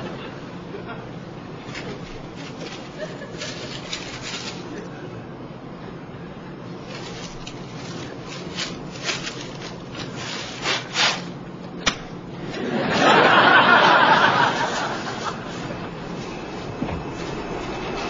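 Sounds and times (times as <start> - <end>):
paper bag bursting: 1.7 - 4.9, 6.8 - 11.4
studio audience laughter: 12.5 - 16.0.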